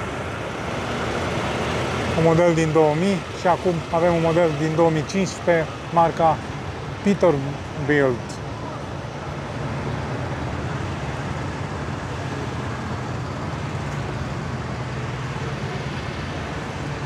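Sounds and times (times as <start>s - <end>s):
low engine rumble: 0.0s - 17.0s
outdoor vehicle noise: 0.0s - 17.0s.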